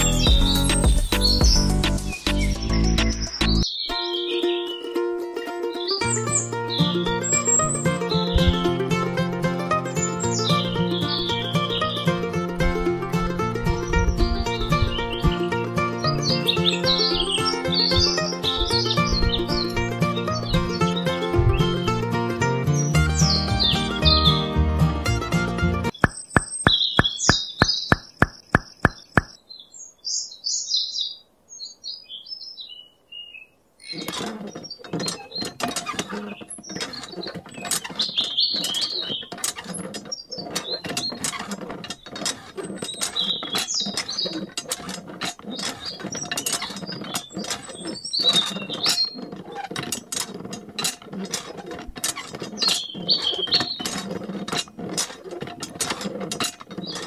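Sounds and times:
birds chirping: 0:00.0 - 0:05.0, 0:05.6 - 0:24.6, 0:25.8 - 0:44.8, 0:45.4 - 0:49.6, 0:51.5 - 0:54.4, 0:56.2 - 0:57.0
hand pump handle clicking and rattling: 0:07.1 - 0:21.9, 0:25.9 - 0:29.4, 0:33.9 - 0:57.0.

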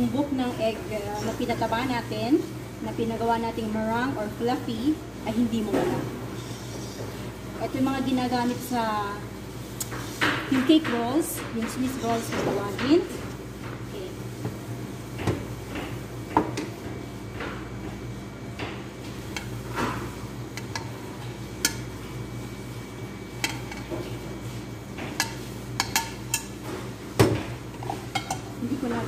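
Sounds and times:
utensils clinking on metal bowl: 0:25.1 - 0:26.6, 0:27.8 - 0:29.0.

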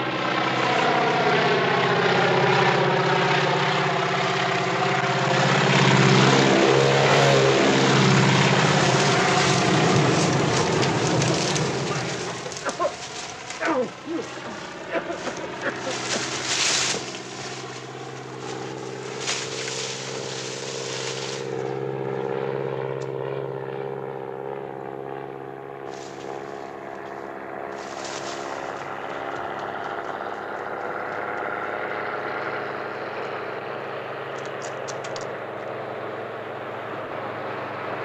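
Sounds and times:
propeller plane engine drone: 0:00.0 - 0:38.0.

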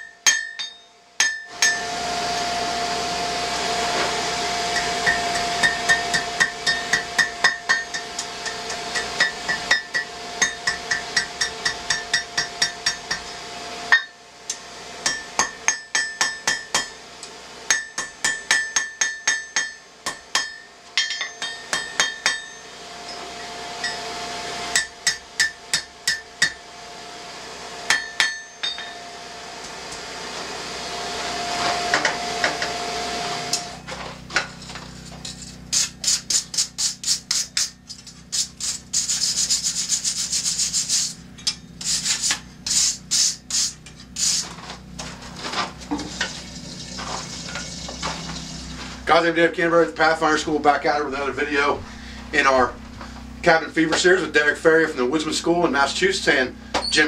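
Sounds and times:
hammer ringing on anvil: 0:00.0 - 0:02.0, 0:04.7 - 0:17.0, 0:17.7 - 0:24.1, 0:24.7 - 0:26.6, 0:27.9 - 0:29.2
steady hum: 0:00.0 - 0:57.0.

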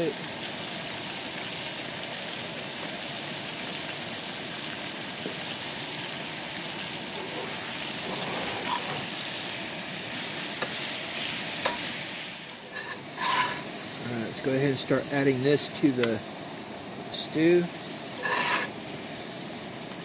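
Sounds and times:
steak sizzling in oil: 0:00.0 - 0:20.0
utensil stirring meat in skillet: 0:05.1 - 0:19.3.

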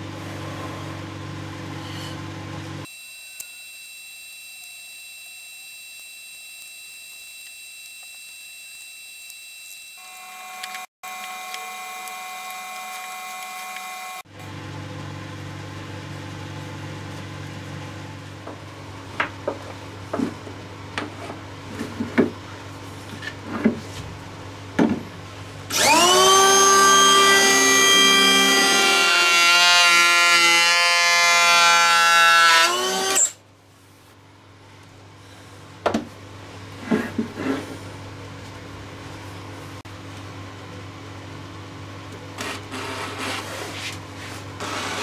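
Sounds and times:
hand planer whining: 0:25.7 - 0:33.4.

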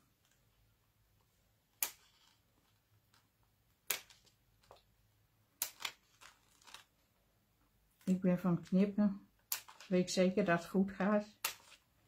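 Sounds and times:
scissors snipping cardstock: 0:11.3 - 0:11.8.

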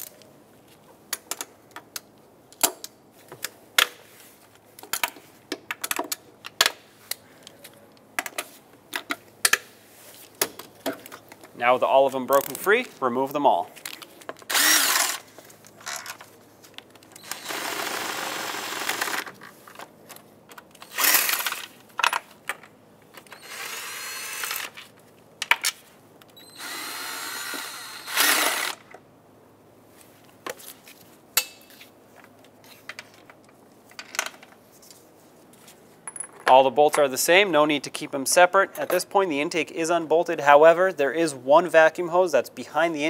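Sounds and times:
cordless power tool spinning bolts: 0:14.5 - 0:16.1, 0:17.2 - 0:19.4, 0:20.8 - 0:21.7, 0:23.3 - 0:24.8, 0:26.5 - 0:28.9.

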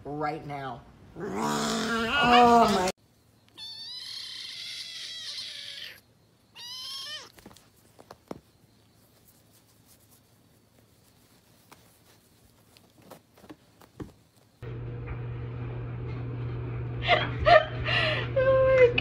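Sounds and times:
kitten meowing: 0:03.5 - 0:07.4.

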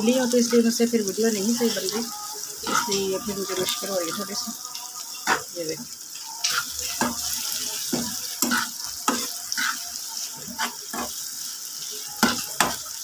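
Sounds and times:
vegetables sizzling in oil: 0:00.0 - 0:13.0
metal spatula scraping pan: 0:02.6 - 0:05.6, 0:06.4 - 0:11.2.

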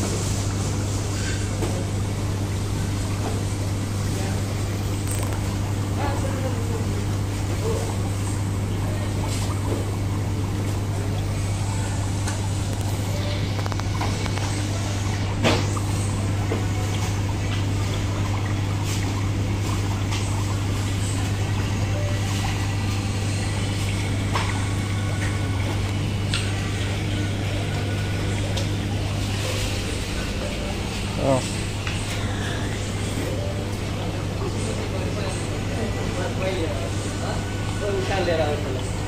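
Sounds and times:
pump low hum: 0:00.0 - 0:39.0.

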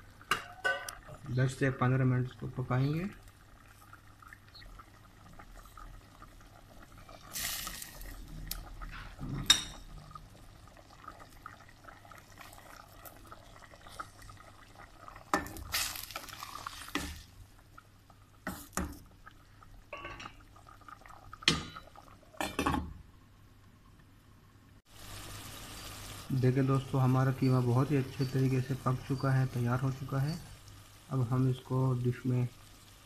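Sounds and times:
pot simmering and bubbling: 0:00.0 - 0:33.0
metal pot and utensils clinking: 0:00.3 - 0:01.2, 0:08.9 - 0:10.0, 0:19.9 - 0:20.4.

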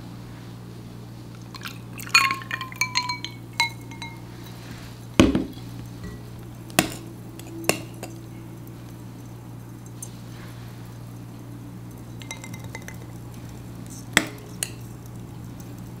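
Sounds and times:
milk pouring: 0:01.4 - 0:10.1, 0:11.2 - 0:16.0
ice cubes clinking against glass: 0:01.6 - 0:04.2, 0:12.1 - 0:13.2
heavy thump: 0:05.2 - 0:05.6.

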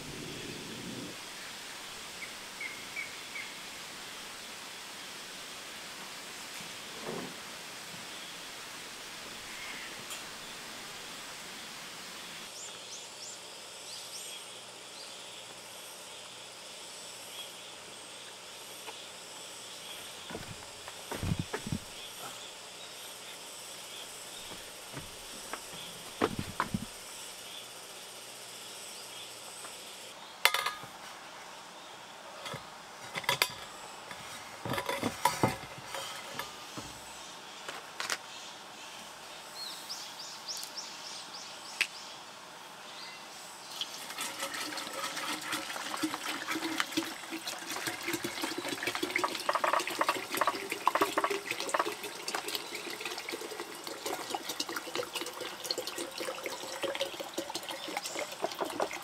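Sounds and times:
knocks and clicks of gear handled: 0:24.5 - 0:26.9
water pouring into a container: 0:43.7 - 0:59.0.

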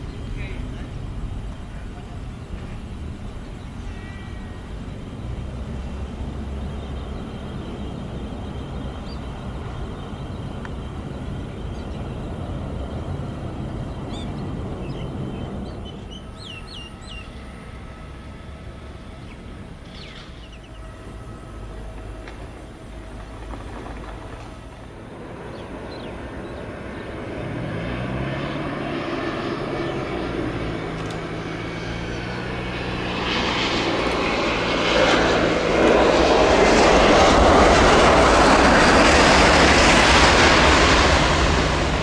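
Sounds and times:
distant jet engines rumbling: 0:00.0 - 0:42.0
bird chirps: 0:13.8 - 0:17.7, 0:19.1 - 0:22.2, 0:25.5 - 0:26.6.

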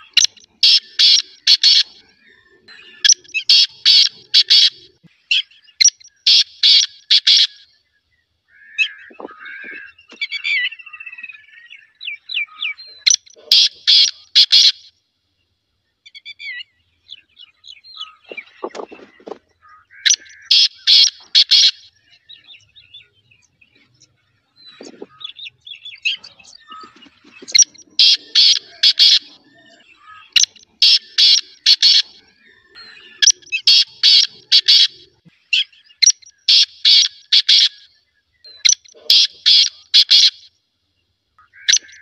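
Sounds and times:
francolin calling harshly: 0:00.0 - 0:02.0, 0:02.7 - 0:07.7, 0:08.5 - 0:14.9, 0:18.0 - 0:22.2, 0:24.7 - 0:37.9, 0:38.5 - 0:40.5, 0:41.5 - 0:42.0
faint bird chirps: 0:00.0 - 0:42.0.

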